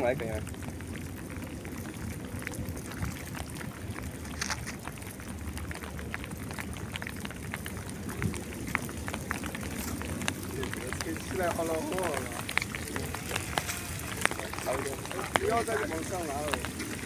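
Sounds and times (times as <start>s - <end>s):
rain pattering: 0.0s - 17.0s
wind rumbling on microphone: 0.0s - 17.0s.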